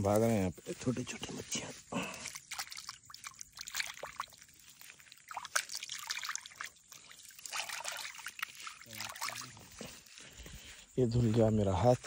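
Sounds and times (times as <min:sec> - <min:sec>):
hands splashing water: 0:02.0 - 0:10.0.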